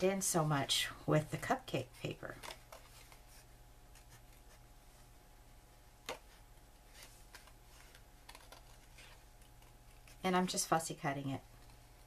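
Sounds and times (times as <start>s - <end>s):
scissors snipping paper: 8.2s - 10.6s.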